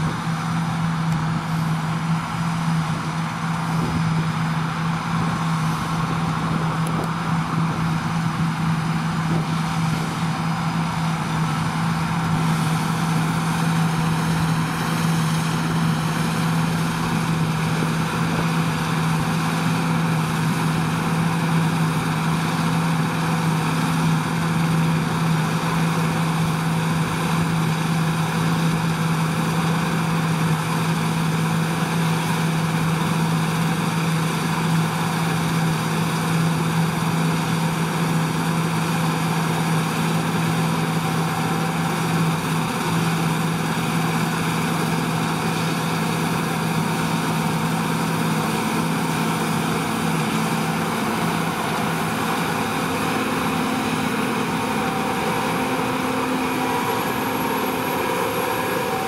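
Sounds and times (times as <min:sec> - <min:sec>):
combine harvester droning: 0:00.0 - 0:59.0.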